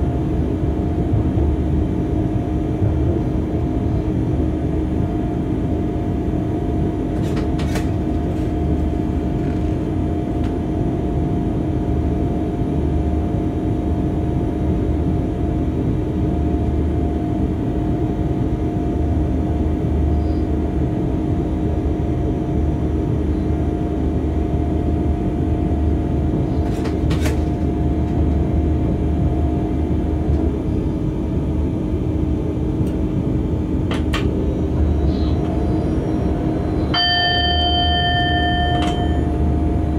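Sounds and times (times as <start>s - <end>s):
locomotive cab rumble: 22.6s - 39.9s.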